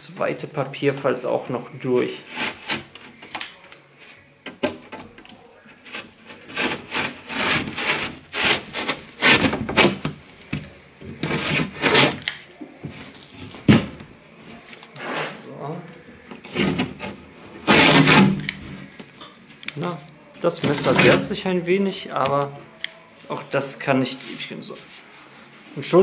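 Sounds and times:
utility knife scraping through paper: 0:05.9 - 0:09.5, 0:11.2 - 0:12.3, 0:16.5 - 0:18.5.

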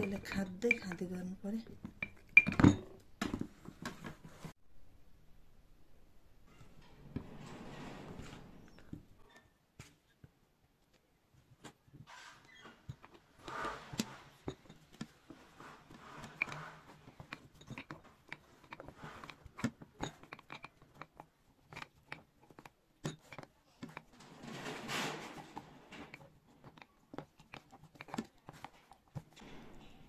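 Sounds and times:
wooden spoon tapping glass jar: 0:00.0 - 0:01.1, 0:01.8 - 0:02.8.

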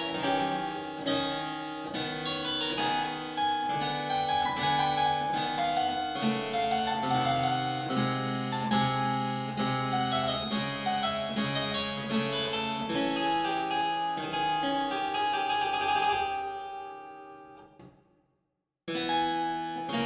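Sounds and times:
harpsichord playing: 0:00.0 - 0:17.6, 0:18.9 - 0:20.0.

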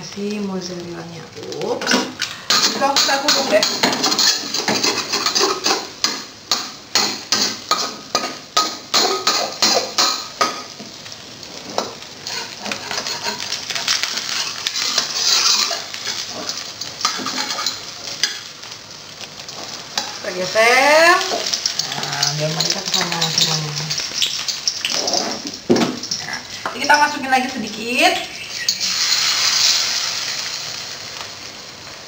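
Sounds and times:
egg sizzling in oil: 0:00.0 - 0:32.0
spatula scraping a wok: 0:02.0 - 0:10.7, 0:11.5 - 0:18.5, 0:21.3 - 0:26.4.

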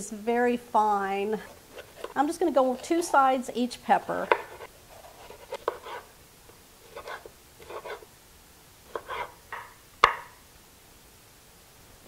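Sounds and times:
knife slicing on wooden board: 0:04.3 - 0:06.1, 0:06.9 - 0:08.1, 0:08.9 - 0:10.2.

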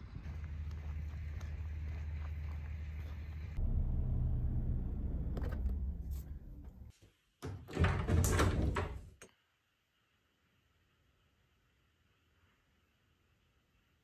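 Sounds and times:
low rumble: 0:00.0 - 0:06.9
wooden door unlatching and opening: 0:07.4 - 0:09.2.

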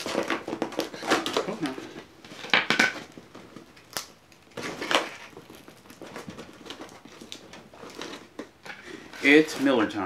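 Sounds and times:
cardboard rustling: 0:00.0 - 0:03.9, 0:04.5 - 0:10.0
packing tape ripping: 0:00.0 - 0:08.5.

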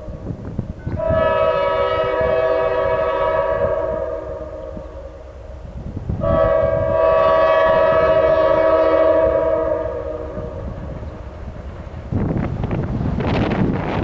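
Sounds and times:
locomotive air horn blasts: 0:00.0 - 0:05.5, 0:06.2 - 0:11.2
low rumble of train: 0:00.0 - 0:14.0.

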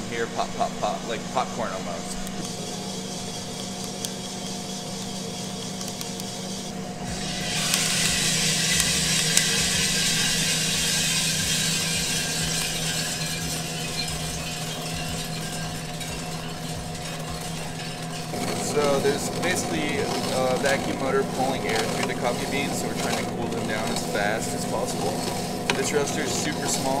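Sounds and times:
coffee roaster humming: 0:00.0 - 0:27.0
coffee beans popping: 0:02.1 - 0:27.0
beans pouring with rushing air: 0:07.1 - 0:27.0.

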